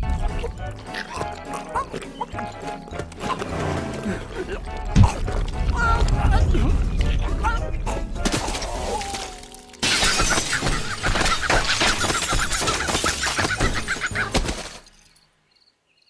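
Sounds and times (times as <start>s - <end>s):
cartoon glass shattering: 8.2s - 15.2s.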